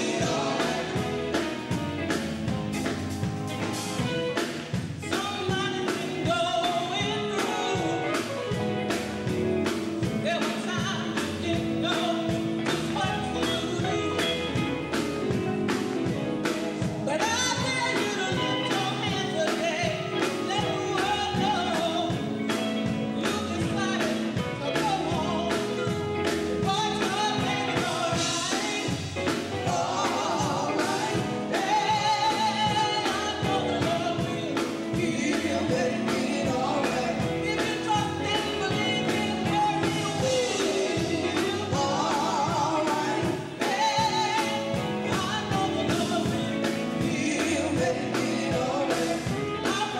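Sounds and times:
women singing together: 0.0s - 1.8s, 26.6s - 49.9s
drum kit beat: 0.0s - 49.9s
electric guitars: 0.0s - 49.9s.

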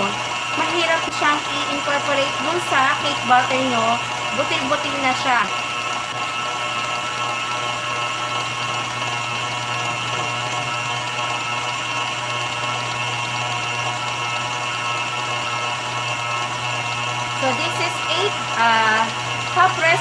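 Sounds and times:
stand mixer motor whining: 0.0s - 20.0s.

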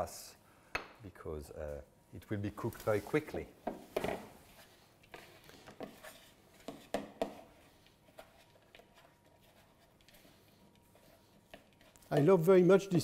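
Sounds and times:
hands kneading dough in bowl: 4.3s - 13.0s.

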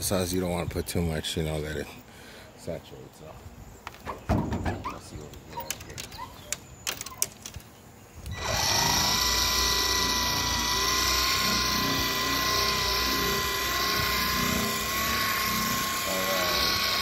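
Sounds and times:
polisher motor whining: 8.3s - 17.0s.

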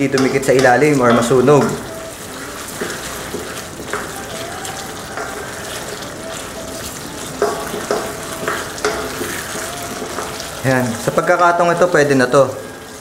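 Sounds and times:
sauce bubbling and sizzling in wok: 0.0s - 13.0s.

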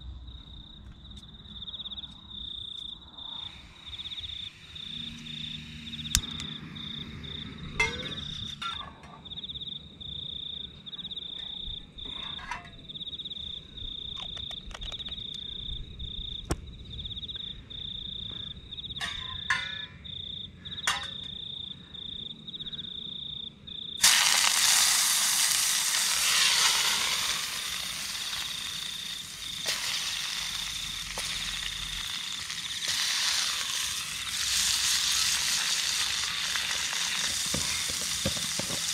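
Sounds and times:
cricket chirping: 0.0s - 38.9s
food sizzling in a frying pan: 24.0s - 38.9s.

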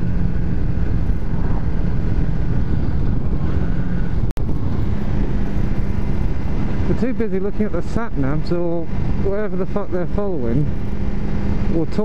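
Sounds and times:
wind rush on microphone: 0.0s - 9.4s
motorcycle engine running: 0.0s - 12.0s.

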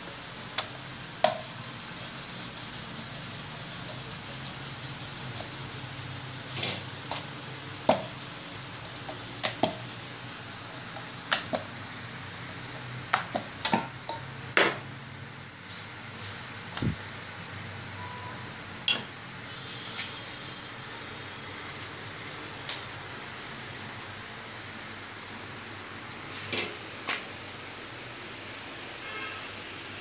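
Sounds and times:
flatbread hissing on hot griddle: 1.2s - 12.5s.

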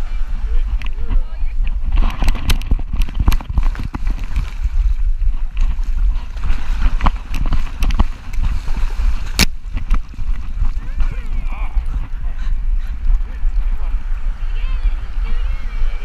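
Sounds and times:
water splashing: 0.0s - 16.0s
camera knocking: 6.8s - 8.5s.

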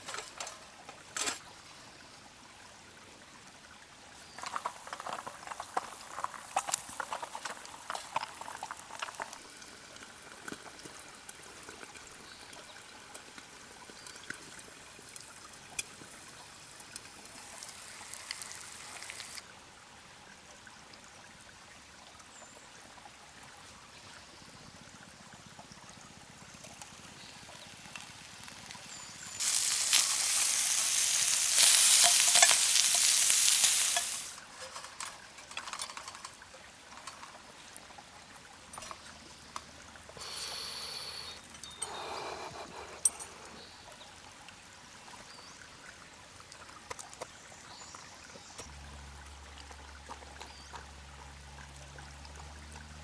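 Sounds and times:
eggs sizzling in a pan: 4.4s - 14.0s, 15.8s - 19.4s, 26.7s - 34.4s
sausages sizzling in a pan: 17.3s - 19.4s, 27.2s - 34.4s.

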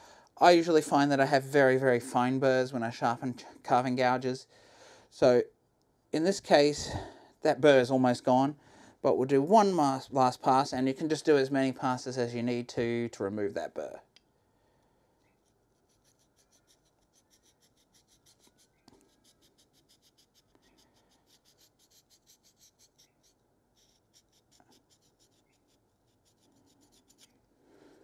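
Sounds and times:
slipstone scratching on steel gouge: 15.4s - 27.3s.

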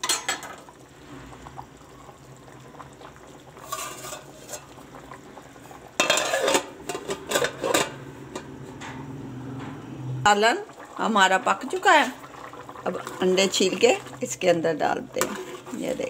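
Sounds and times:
metal lid clattering on pot: 0.0s - 0.6s, 3.6s - 4.8s, 6.0s - 8.5s
pot boiling quietly: 0.0s - 16.0s.

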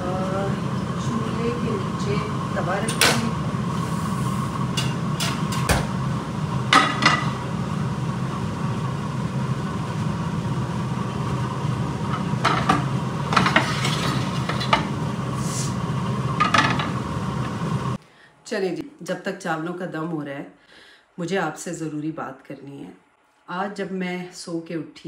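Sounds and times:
steady low hum: 0.0s - 24.3s
metal pot clanking on griddle: 6.7s - 7.4s, 12.1s - 15.0s.

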